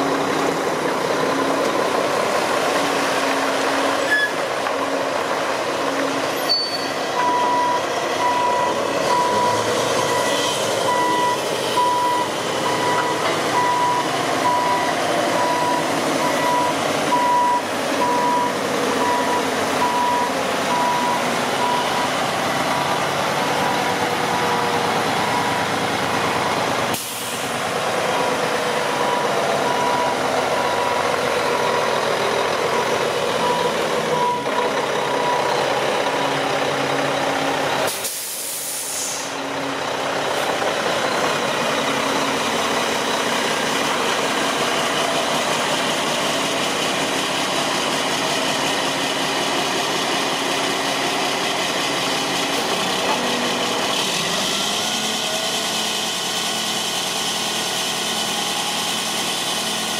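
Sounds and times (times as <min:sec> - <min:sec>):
diesel truck engine idling: 0:00.0 - 0:59.9
air hiss burst: 0:37.9 - 0:39.3.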